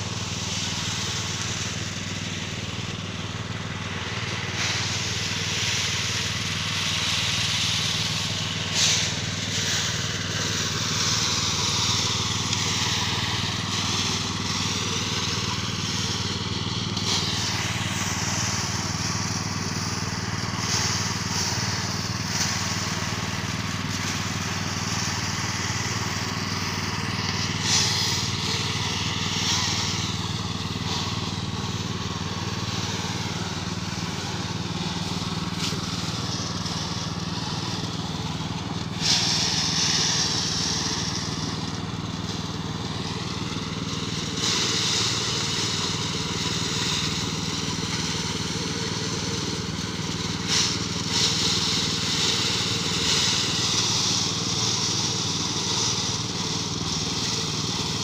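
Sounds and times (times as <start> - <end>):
thresher engine running: 0.0 - 58.0
rice stalks rustling and crunching: 3.9 - 48.0, 50.0 - 58.0.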